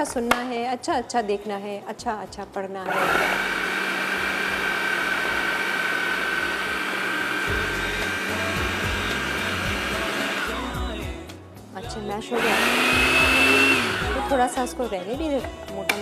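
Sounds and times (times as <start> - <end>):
food processor motor running: 2.9 - 10.6, 12.4 - 14.3.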